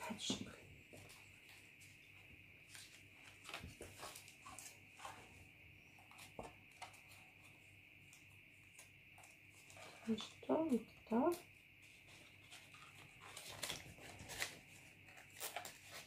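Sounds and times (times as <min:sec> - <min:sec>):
faint steady hum: 0:00.0 - 0:16.0
paper rustling: 0:02.6 - 0:05.3, 0:11.8 - 0:16.0.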